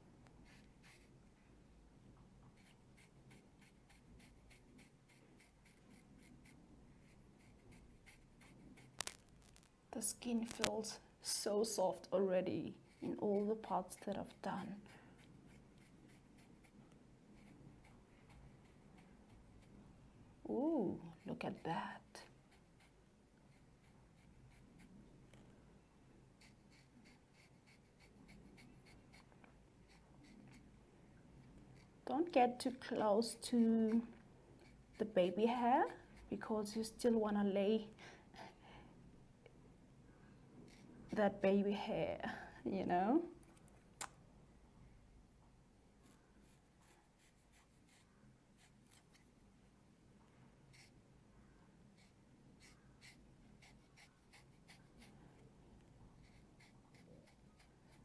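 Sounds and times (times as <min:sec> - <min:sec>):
razor blade scraping skin: 0:00.4 - 0:01.1, 0:02.5 - 0:09.6, 0:12.8 - 0:16.8, 0:17.4 - 0:19.8, 0:26.4 - 0:30.7, 0:34.6 - 0:36.4, 0:52.0 - 0:55.1, 0:56.2 - 0:58.0.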